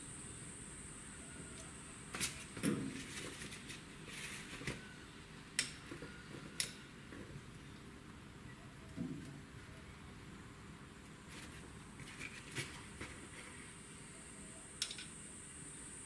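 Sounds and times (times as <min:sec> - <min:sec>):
steel tools clicking and tapping: 0:14.8 - 0:15.2.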